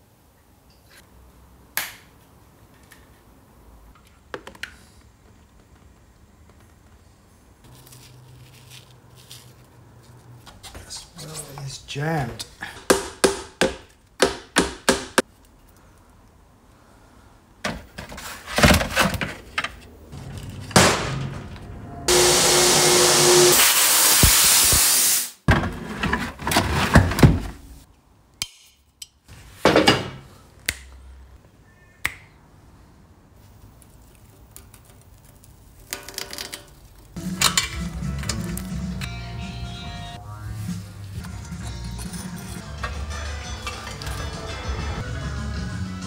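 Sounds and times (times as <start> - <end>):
loud steady hiss: 22.1 - 25.4
tools and metal parts clinking: 35.8 - 38.6.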